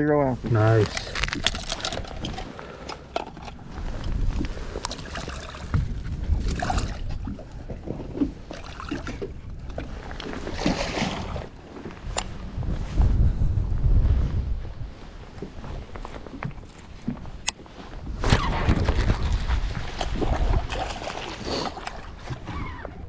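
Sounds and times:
water sloshing against a hull: 0.0 - 13.7, 14.4 - 23.0
rain gear rustling: 11.4 - 18.2.

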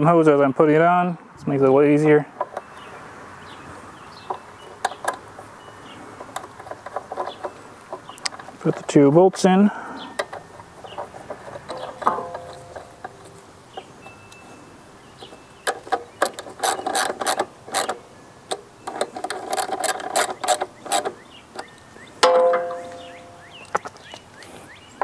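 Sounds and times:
hand ratchet clicking: 15.7 - 23.4.

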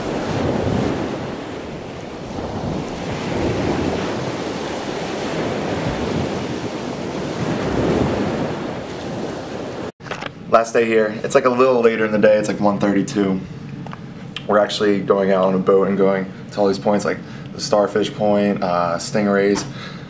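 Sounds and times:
wind buffeting microphone: 0.0 - 9.9
sea waves washing: 0.0 - 10.0.

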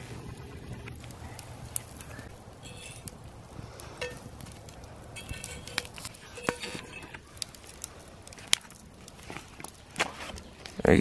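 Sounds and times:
campfire crackling: 0.0 - 11.0
metal fork scraping skillet: 2.6 - 3.1, 5.2 - 7.2.

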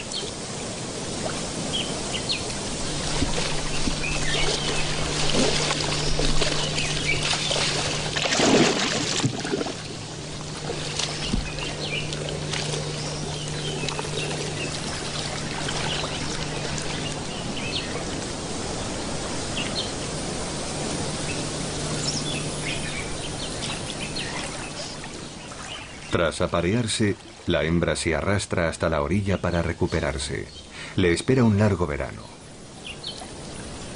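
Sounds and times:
water splashing: 0.0 - 27.7
bird chirps: 10.8 - 18.0.

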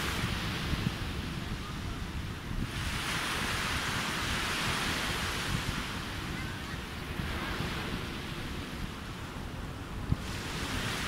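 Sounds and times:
sea waves breaking on beach: 0.0 - 11.0
wind rumble on microphone: 0.0 - 11.0.

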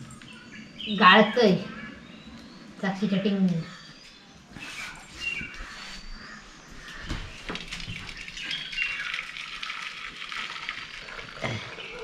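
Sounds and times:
water pouring through strainer: 7.7 - 12.0.

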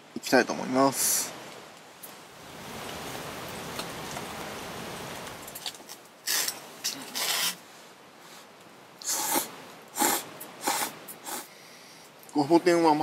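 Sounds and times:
noodle slurps: 9.0 - 11.5.

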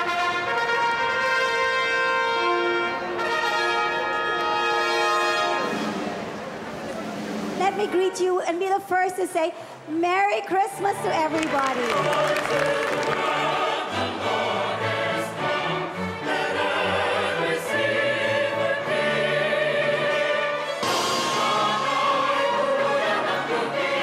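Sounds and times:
symphony orchestra playing: 0.0 - 9.0, 10.8 - 24.0
singing voices: 10.9 - 24.0.

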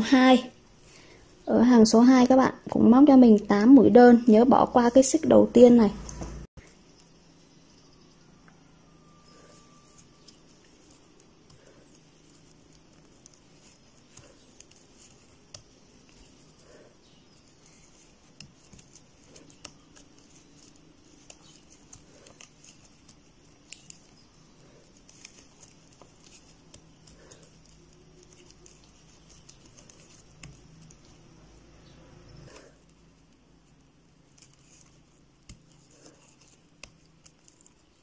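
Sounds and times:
crochet hook clicking and rustling: 9.9 - 31.3, 32.5 - 38.0.

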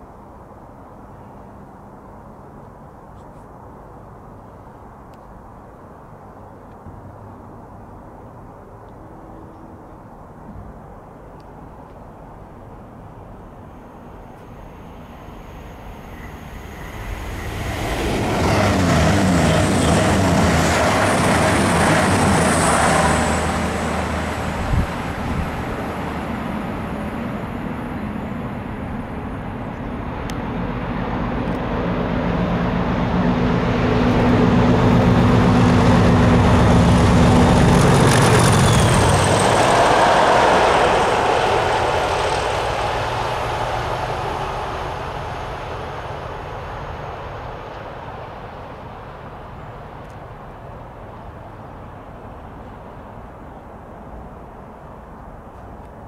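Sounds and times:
diesel locomotives passing: 12.4 - 56.0.

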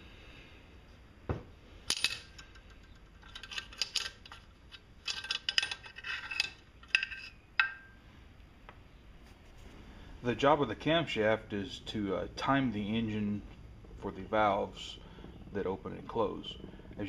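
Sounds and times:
metal tappets clinking: 1.8 - 8.0.

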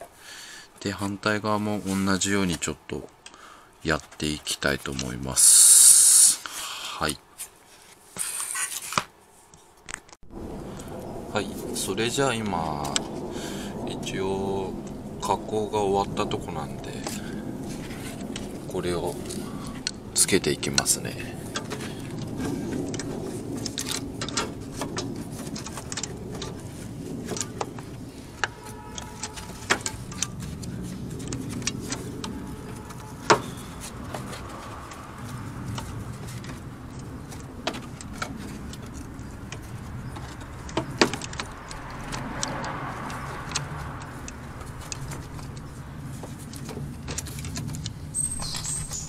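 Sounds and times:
steady low hum: 10.2 - 42.4
plastic cover clicking and rattling: 20.7 - 48.0.

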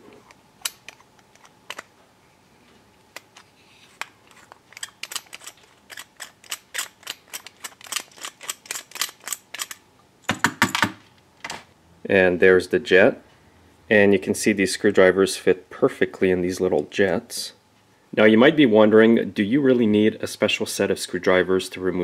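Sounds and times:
screwdriver clicking on metal: 4.3 - 9.8.

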